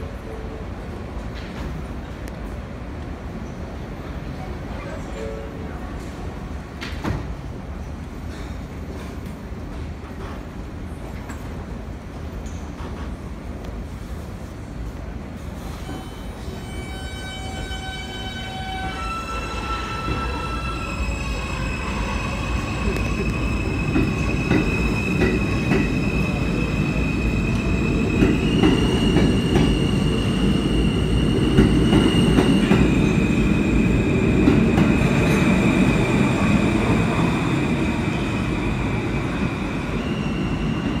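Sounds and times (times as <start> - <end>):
train wheels rumbling on rails: 5.9 - 41.0.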